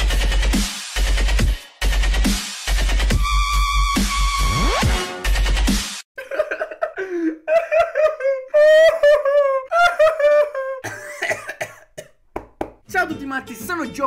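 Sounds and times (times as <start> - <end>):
electronic music: 0.0 - 6.0.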